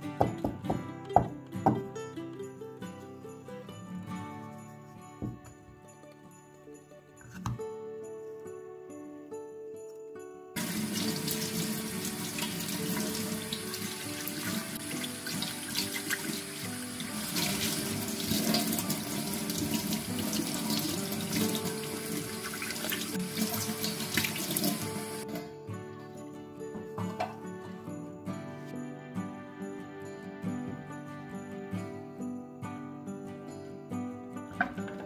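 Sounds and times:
hands rubbing and rinsing: 10.6 - 25.2.

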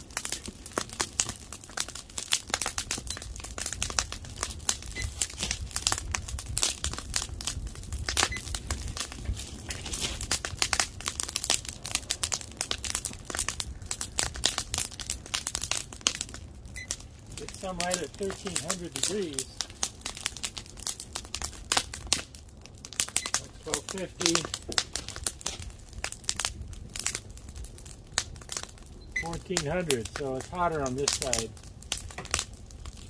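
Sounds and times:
low fire rumble: 0.0 - 33.0
wood fire crackling and popping: 0.0 - 33.0.

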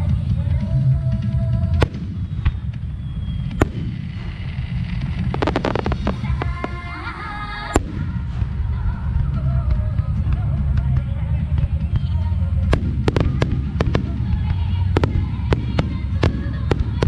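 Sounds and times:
low rumble: 0.0 - 17.0
firework shells bursting: 1.7 - 8.8, 12.6 - 17.0
crackling pops: 1.8 - 8.6, 12.0 - 17.0.

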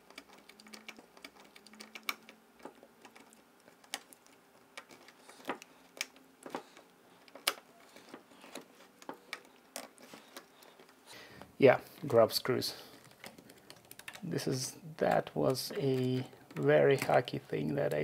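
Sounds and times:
hands handling plastic parts: 0.0 - 18.0.

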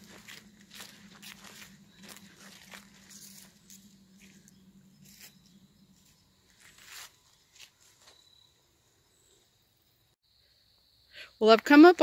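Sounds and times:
footsteps crunching on dry leaves: 0.0 - 8.4.

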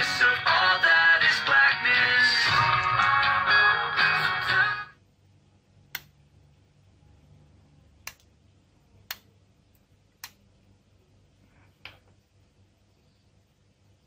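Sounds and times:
faint low hum: 4.9 - 14.0.

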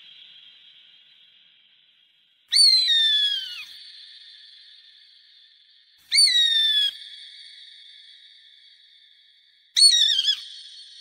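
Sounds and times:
bird of prey whistling call: 2.5 - 4.9, 6.0 - 7.8, 9.8 - 11.0.

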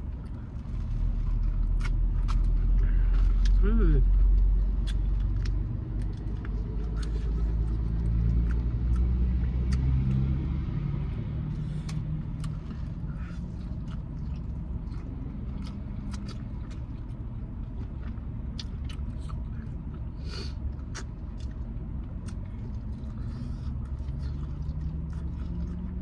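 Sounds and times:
vehicle engine rumble: 0.0 - 26.0
eating sounds: 11.5 - 26.0.

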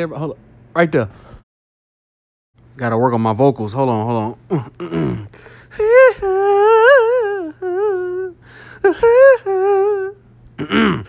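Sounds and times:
man singing in falsetto: 4.6 - 11.0.

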